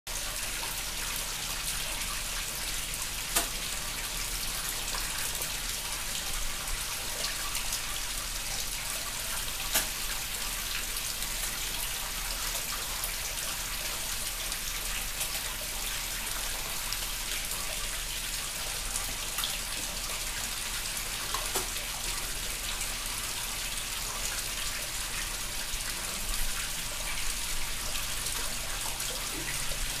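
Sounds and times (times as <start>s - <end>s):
waterfall splashing into pond: 0.1s - 30.0s
sharp clicks and splashes: 3.3s - 3.8s, 9.4s - 10.9s, 21.2s - 21.9s.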